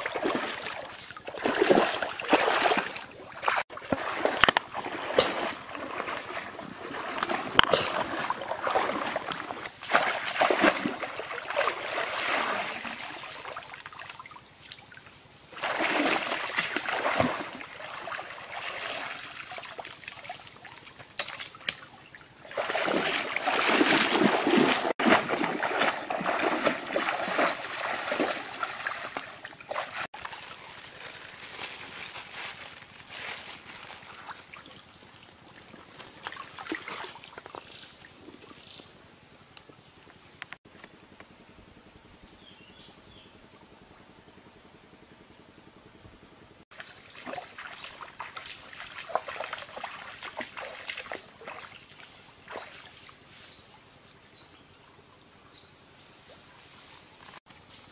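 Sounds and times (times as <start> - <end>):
stream water splashing: 0.0 - 38.8, 46.7 - 53.8
water trickling: 4.8 - 30.1.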